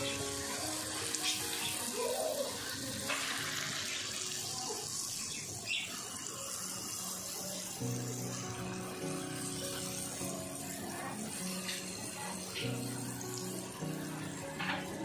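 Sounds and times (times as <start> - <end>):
fritters sizzling in hot oil: 0.0 - 15.0.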